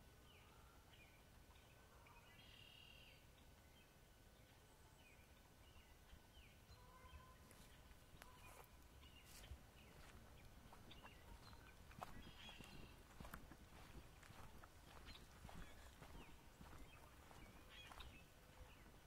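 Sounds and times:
faint bird chirps: 0.3s - 3.8s, 4.4s - 19.0s
footsteps on leafy dirt trail: 7.4s - 19.0s.

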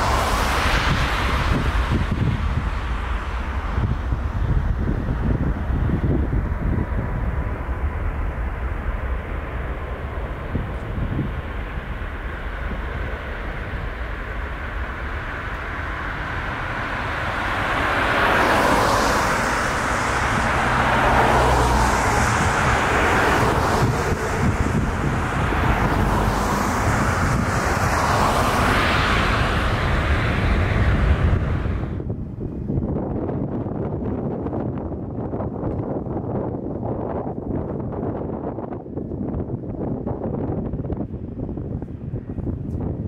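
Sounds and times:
jet engines roaring: 0.0s - 32.5s.

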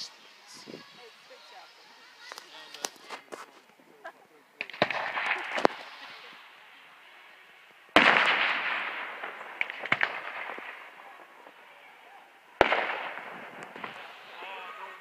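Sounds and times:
firework shells bursting: 2.2s - 3.8s, 4.6s - 11.6s, 12.6s - 14.5s.

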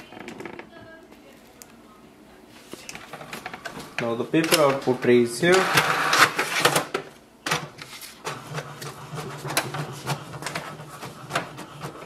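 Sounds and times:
plastic tray clattering: 3.0s - 5.6s
inkjet printer humming: 3.0s - 6.8s, 7.8s - 12.0s
printer clicks: 4.0s - 6.8s.

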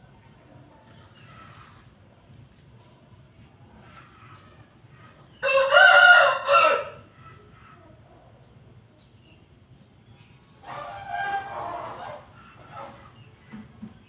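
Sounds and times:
rooster crowing: 5.4s - 7.0s.

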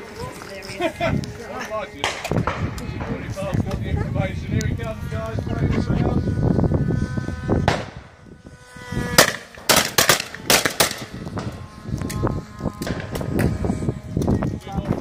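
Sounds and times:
shotguns firing: 9.2s - 11.5s.

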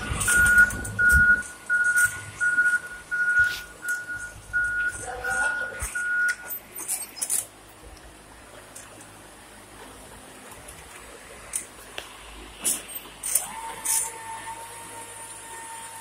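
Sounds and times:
forklift warning beeper: 0.0s - 6.6s.

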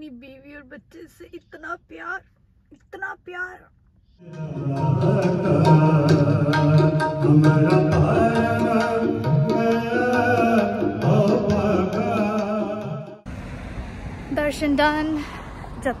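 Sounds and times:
devotional hymn singing: 4.2s - 13.2s.

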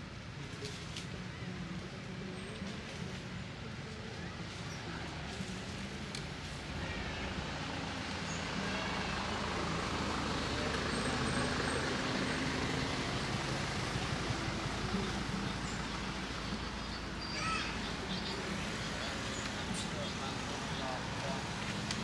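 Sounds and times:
vehicle engine hum: 0.0s - 22.0s.

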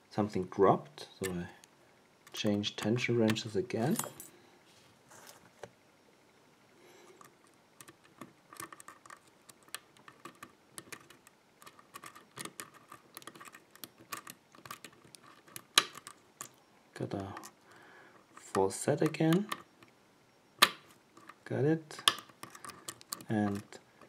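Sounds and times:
lock pick metallic clicks: 7.2s - 16.6s, 22.0s - 23.7s.

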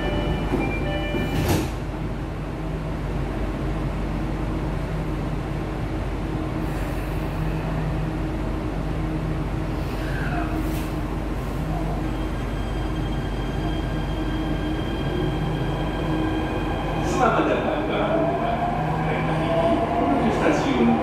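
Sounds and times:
door-warning chime: 0.0s - 1.6s.

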